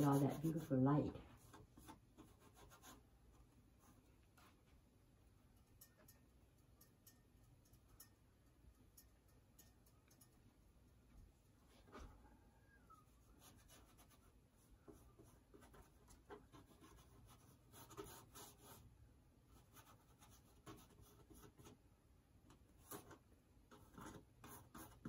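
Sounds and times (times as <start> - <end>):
paintbrush scratching on canvas: 0.0 - 3.1, 13.0 - 18.9, 22.8 - 25.0.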